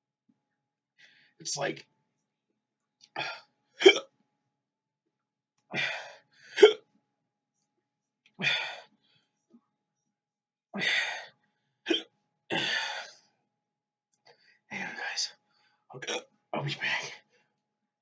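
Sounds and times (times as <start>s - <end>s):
man hiccuping: 3.8s - 4.1s, 6.6s - 6.8s
man huffing short breaths: 8.4s - 8.9s, 12.5s - 13.2s.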